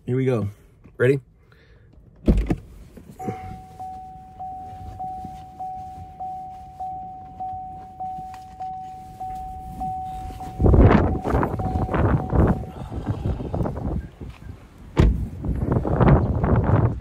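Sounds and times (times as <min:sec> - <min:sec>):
car door warning chime: 0:03.2 - 0:13.2
wind noise on microphone: 0:09.3 - 0:17.0.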